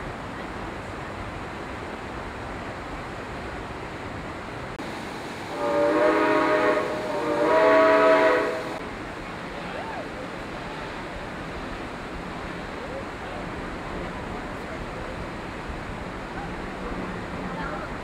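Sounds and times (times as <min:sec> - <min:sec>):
steady rushing noise: 0:00.0 - 0:18.0
steam locomotive whistle blasts: 0:05.5 - 0:08.8.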